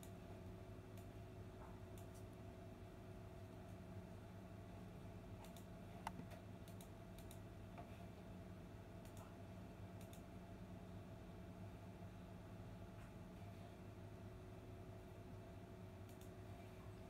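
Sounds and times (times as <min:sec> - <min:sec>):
steady low hum: 0:00.0 - 0:17.0
faint light clicks and ticks: 0:00.9 - 0:02.4, 0:05.4 - 0:07.9, 0:09.0 - 0:09.4, 0:10.0 - 0:10.3, 0:16.0 - 0:16.4.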